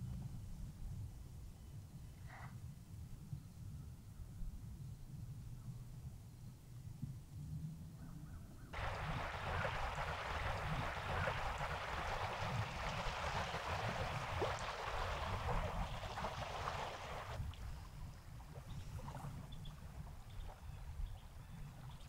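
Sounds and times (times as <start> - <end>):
wind rumble on microphone: 0.0 - 22.0
water washing against rocks: 8.8 - 17.4.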